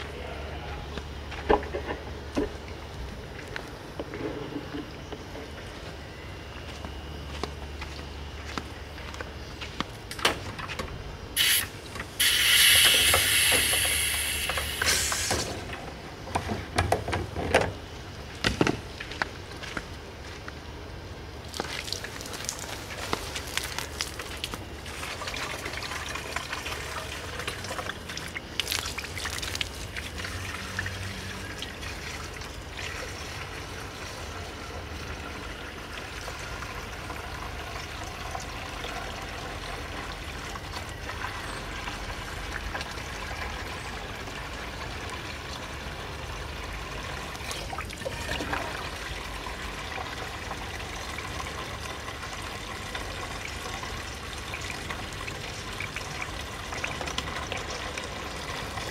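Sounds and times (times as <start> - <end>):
water pouring into a tank: 11.4 - 15.6, 21.4 - 58.9.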